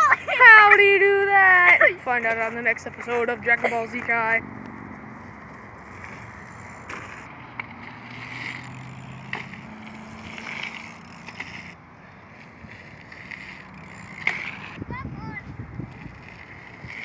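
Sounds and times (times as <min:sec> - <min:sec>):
bike tyres on dirt: 0:00.0 - 0:17.0
bike clicks and knocks: 0:02.2 - 0:14.8.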